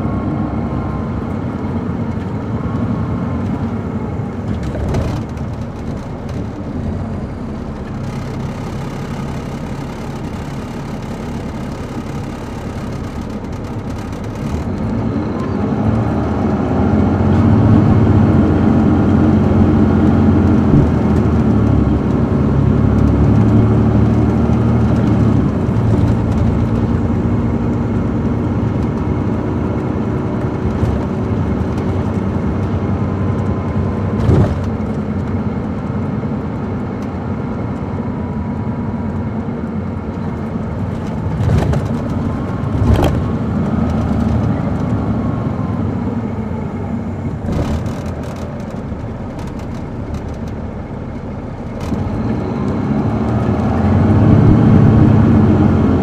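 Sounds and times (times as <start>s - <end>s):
bus diesel engine accelerating: 0.0s - 56.0s.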